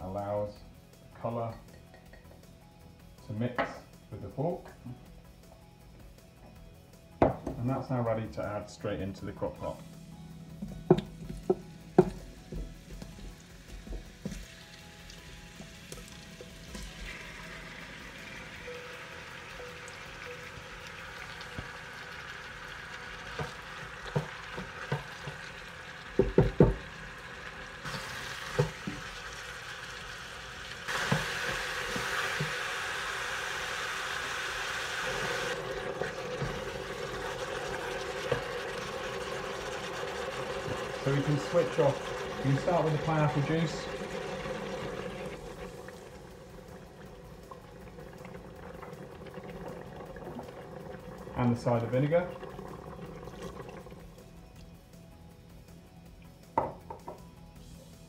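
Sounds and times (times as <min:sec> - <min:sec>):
meat sizzling in a pot: 0:09.6 - 0:55.1.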